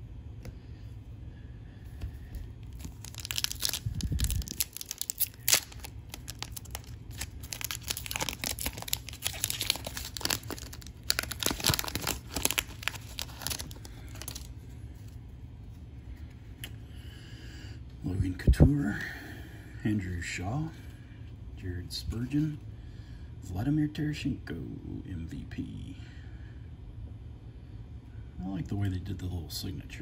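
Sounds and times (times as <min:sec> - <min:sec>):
foil wrapper tearing and crinkling: 0:02.7 - 0:14.5.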